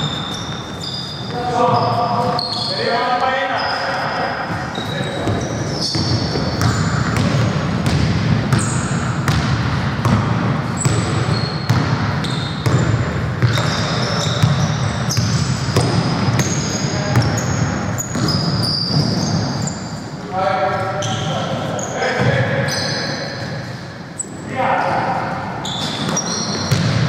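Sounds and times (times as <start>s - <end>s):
sneaker squeaks on wooden floor: 0.0s - 9.4s, 10.7s - 20.2s, 20.9s - 24.4s, 25.6s - 27.0s
basketball bouncing on hardwood: 5.2s - 17.3s, 26.1s - 27.0s.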